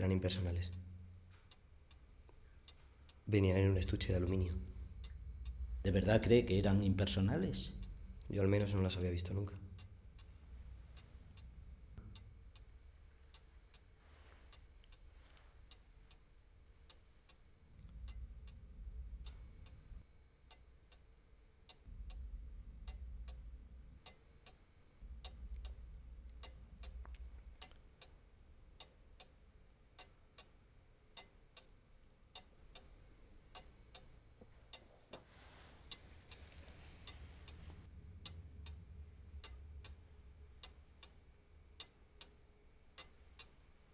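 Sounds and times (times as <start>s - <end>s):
mantel clock ticking: 0.3s - 43.9s
low rumble: 3.3s - 16.7s, 17.6s - 20.0s, 21.9s - 28.8s, 35.3s - 41.8s.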